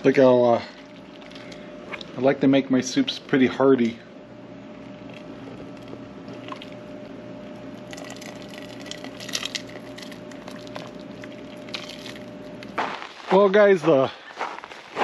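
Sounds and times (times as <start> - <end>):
steady low hum: 0.0 - 15.0
ladle sloshing soup: 7.8 - 12.6.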